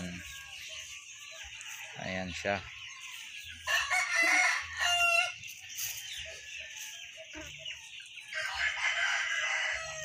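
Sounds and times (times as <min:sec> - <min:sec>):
rooster crowing: 0:03.6 - 0:05.4, 0:08.3 - 0:10.0.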